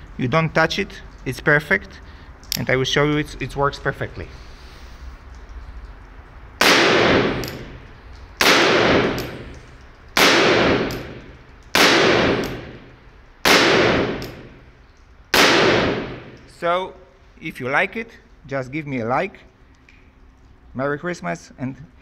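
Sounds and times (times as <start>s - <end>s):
revolver gunshots: 6.6s - 9.6s, 10.2s - 14.6s, 15.3s - 16.5s.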